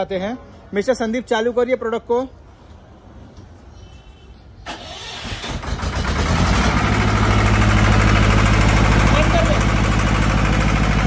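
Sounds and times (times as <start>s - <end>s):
diesel generator engine starting: 4.6s - 11.0s.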